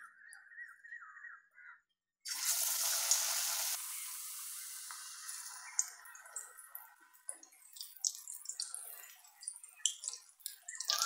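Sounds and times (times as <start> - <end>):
sizzling in hot oil: 2.3 - 11.0
wet batter sounds: 2.3 - 11.0.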